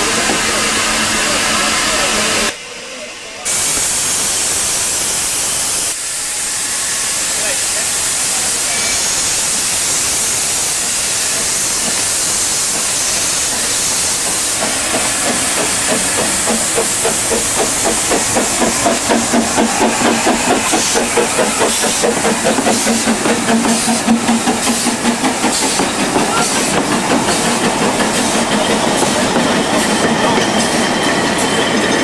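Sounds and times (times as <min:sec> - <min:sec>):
steam train hissing: 0:00.0 - 0:32.0
rhythmic steam engine beat: 0:10.4 - 0:31.4.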